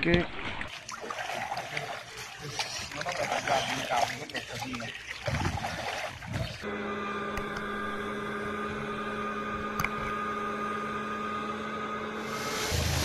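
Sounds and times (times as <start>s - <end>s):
water splashing: 0.0s - 6.7s
boat motor humming: 1.3s - 13.0s.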